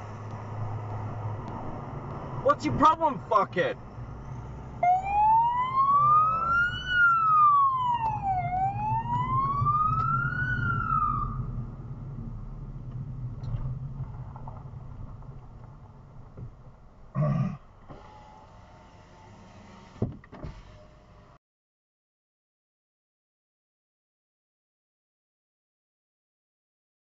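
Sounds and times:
car engine and tyre rumble: 0.0s - 21.4s
police siren wailing: 4.8s - 11.6s.

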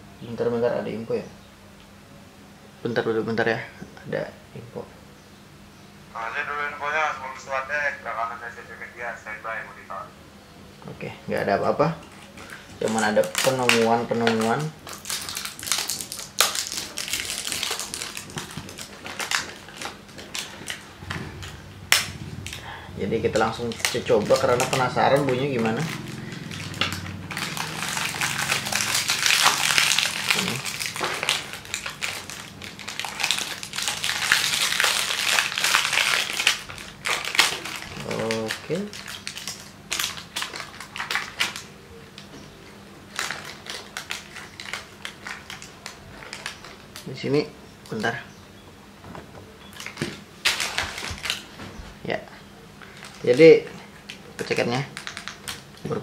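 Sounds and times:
plastic wrap crinkling: 12.0s - 42.3s, 43.1s - 47.2s, 49.7s - 51.8s, 52.8s - 56.0s.

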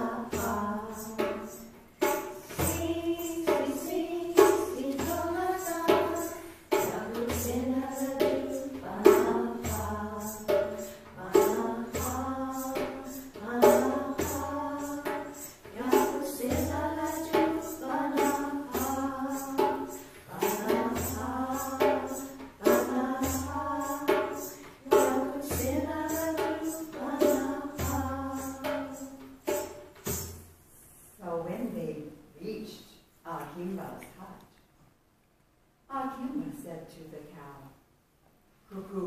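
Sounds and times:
tambourine beat: 0.0s - 30.6s
voices singing a melodic phrase: 2.6s - 29.6s.

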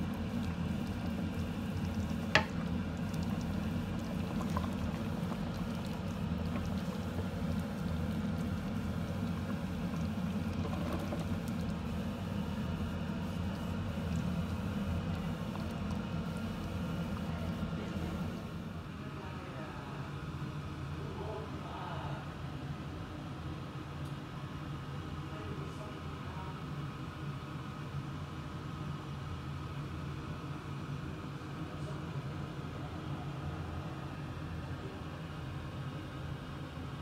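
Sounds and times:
sauce simmering and bubbling in pot: 0.0s - 18.8s.

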